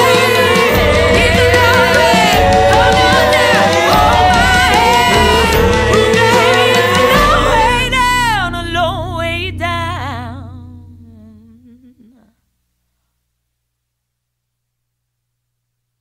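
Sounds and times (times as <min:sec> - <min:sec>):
hummed voice with vibrato: 0:00.0 - 0:12.4
held low note: 0:00.3 - 0:12.2.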